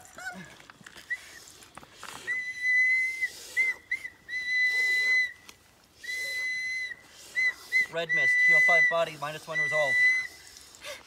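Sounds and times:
high steady whistle tone: 2.2s - 10.7s.

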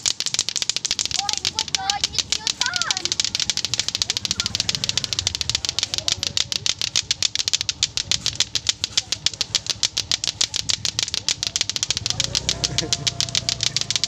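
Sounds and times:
clacker toys clacking: 0.0s - 14.0s.

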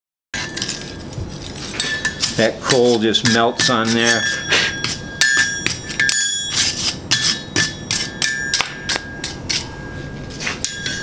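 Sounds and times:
wire brush scrubbing steel: 0.4s - 9.8s
faint metallic ring: 3.2s - 11.0s.

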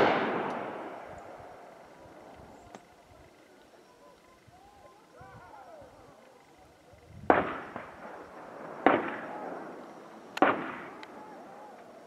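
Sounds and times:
gunshots: 0.0s - 1.2s, 7.2s - 11.4s
echo rolling across valley: 0.0s - 12.0s.

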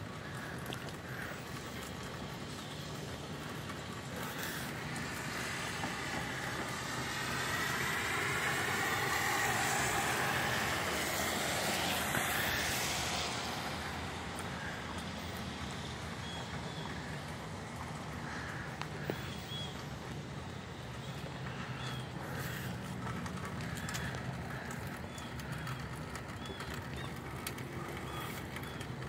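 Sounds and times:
car tyres hissing on wet road: 4.1s - 15.9s.

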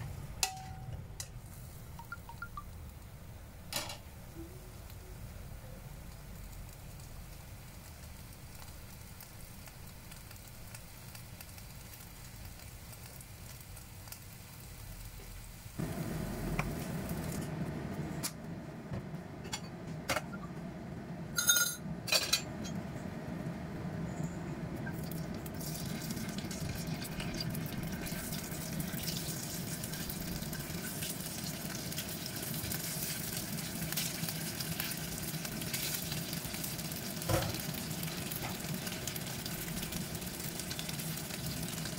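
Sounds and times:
clinks and taps in pan: 0.4s - 1.0s, 2.0s - 2.7s, 21.4s - 22.8s
meat sizzling in hot oil: 4.8s - 17.6s, 24.8s - 41.9s.

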